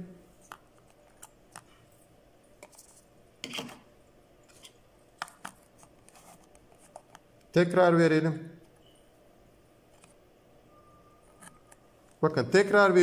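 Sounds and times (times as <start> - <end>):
circuit boards being handled: 4.5 - 7.5.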